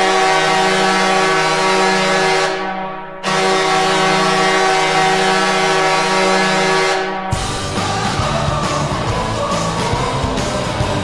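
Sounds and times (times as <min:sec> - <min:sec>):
hockey goal horn blasts: 0:00.0 - 0:07.4.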